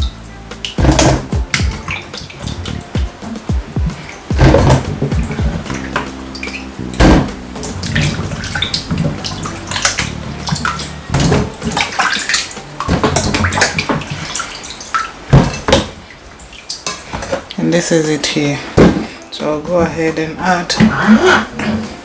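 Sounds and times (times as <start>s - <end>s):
splashes and knocks: 0.0s - 19.2s
hands sloshing water in sink: 0.6s - 17.6s.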